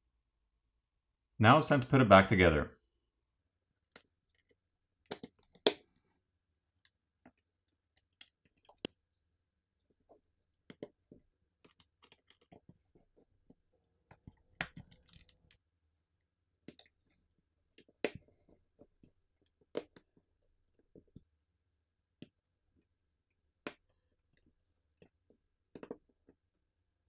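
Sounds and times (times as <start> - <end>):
small clicks and taps of phone parts: 3.8 - 5.9, 6.8 - 9.0, 10.1 - 15.6, 16.2 - 20.2, 23.6 - 26.4.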